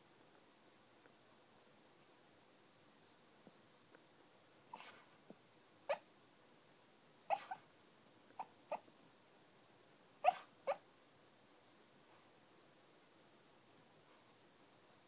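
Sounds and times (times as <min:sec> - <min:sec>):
small dog woofing softly: 0:04.7 - 0:05.1, 0:07.3 - 0:07.6, 0:10.2 - 0:10.8.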